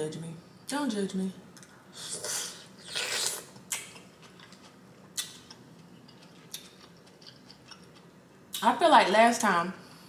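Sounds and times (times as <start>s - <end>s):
sucking sauce off fingers: 2.0s - 3.9s
lip smacks: 2.3s - 5.6s.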